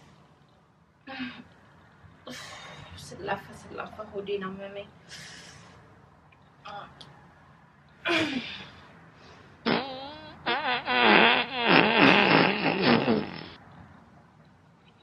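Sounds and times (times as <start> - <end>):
comic fart sounds: 9.6 - 13.6.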